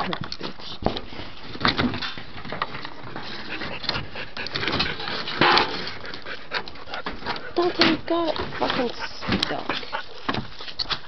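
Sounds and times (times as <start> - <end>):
dog scraping at wooden furniture: 3.1 - 11.0.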